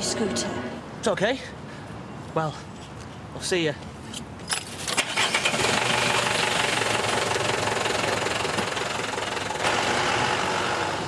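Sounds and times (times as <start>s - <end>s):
diesel lorry engine running: 5.0s - 11.0s.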